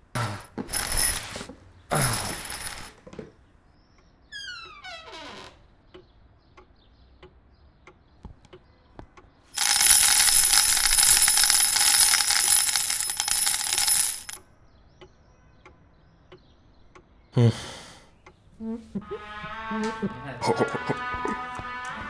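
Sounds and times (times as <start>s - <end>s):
rapid high metallic jangle: 0.7s - 1.3s, 9.6s - 14.4s.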